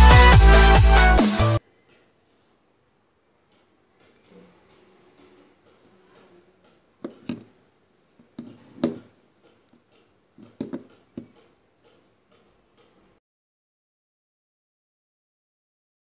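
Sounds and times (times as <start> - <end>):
object knocking on wooden desk: 7.0 - 7.5, 8.4 - 9.1, 10.4 - 11.3.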